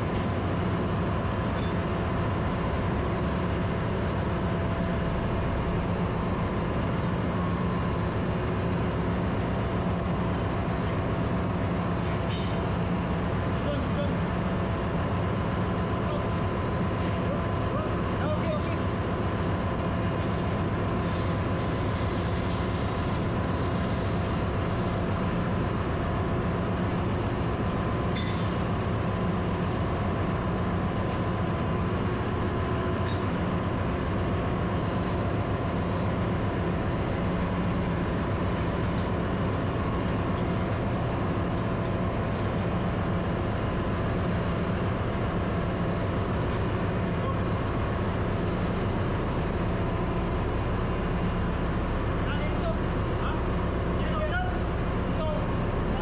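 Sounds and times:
engine-room machinery drone: 0.0 - 56.0.

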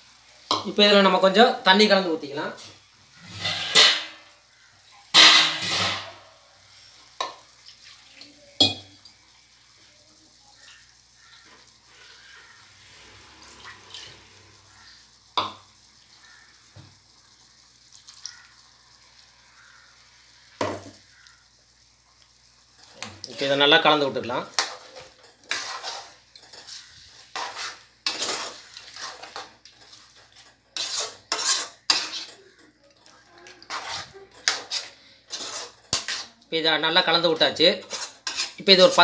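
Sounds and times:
faint sizzle of chicken cooking: 0.0 - 39.0
steel utensils knocking: 5.2 - 6.2.

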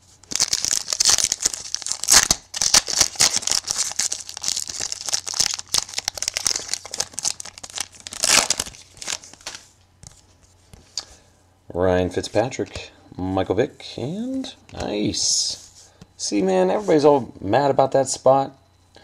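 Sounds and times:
foil wrapper crinkling: 0.2 - 9.7.

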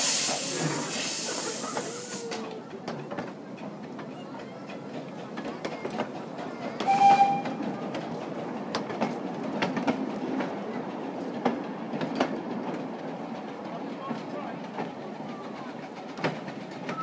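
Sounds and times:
hiss of steam: 0.0 - 2.4
carriages rolling rumble: 0.0 - 17.0
wheels clicking over rail joints: 1.5 - 17.0
steam locomotive whistle: 6.8 - 7.6.

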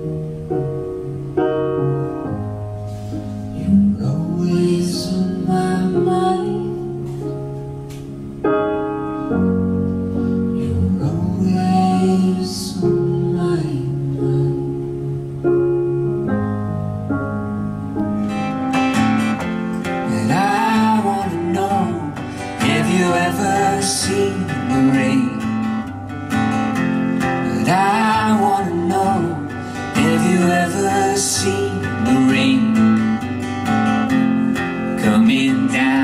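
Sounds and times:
piano chords: 0.0 - 36.0
woman singing: 3.6 - 7.1, 10.7 - 14.8
strummed acoustic guitar: 18.2 - 36.0.

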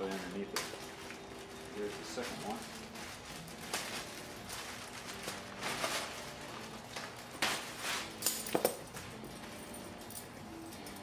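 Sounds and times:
plastic bag crinkling: 0.0 - 8.2.

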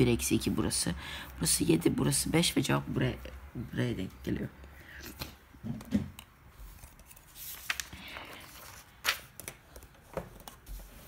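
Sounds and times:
paper pages turning: 6.5 - 11.0.

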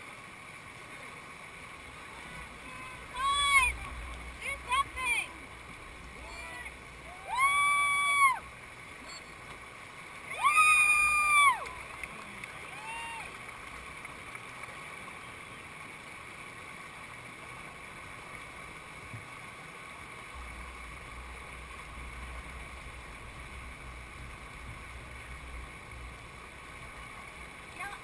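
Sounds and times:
whitewater rushing over rocks: 0.0 - 28.0
low rumble: 1.9 - 9.3, 20.3 - 27.7.

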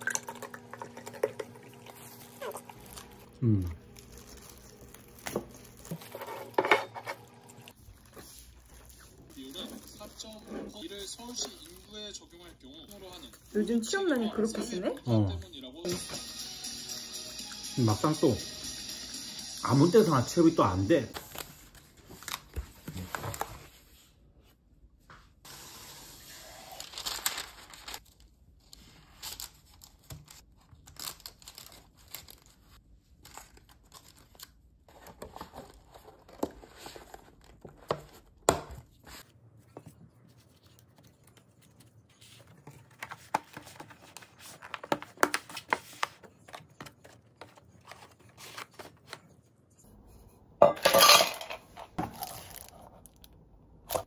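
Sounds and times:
thin plastic packaging crinkling: 1.7 - 6.6, 7.4 - 14.3, 26.5 - 28.3, 52.0 - 53.3.

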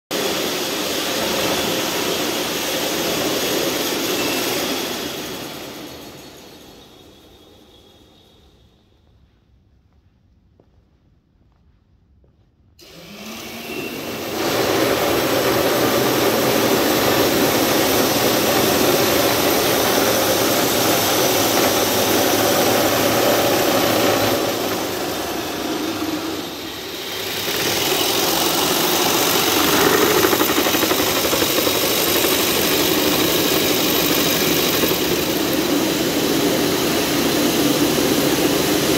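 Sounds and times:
mechanical running noise: 12.8 - 38.9.

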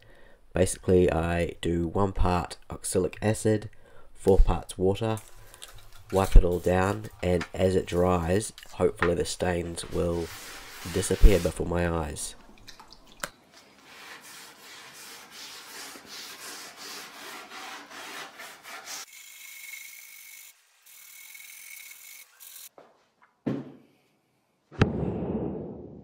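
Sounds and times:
pad scrubbing wooden tabletop: 9.9 - 11.6, 13.8 - 19.1
knocks: 23.4 - 23.9.

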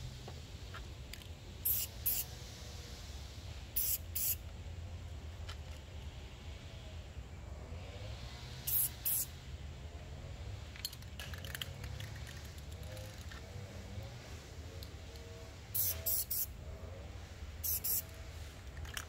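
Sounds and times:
spray paint can bursts: 1.6 - 2.3, 3.8 - 4.4, 8.7 - 9.3, 15.7 - 16.5, 17.6 - 18.1.

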